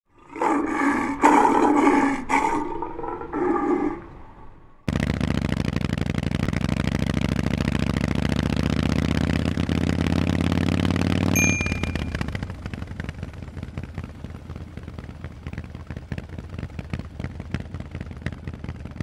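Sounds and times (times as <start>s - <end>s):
loud roaring sound effect: 0.1s - 5.1s
motorcycle engine idling: 4.9s - 19.0s.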